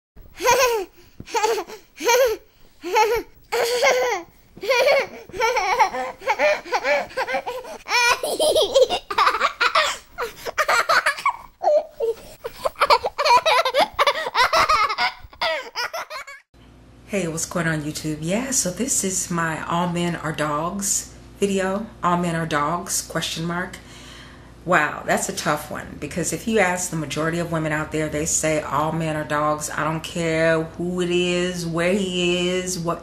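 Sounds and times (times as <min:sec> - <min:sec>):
person laughing: 0:00.4 - 0:16.4.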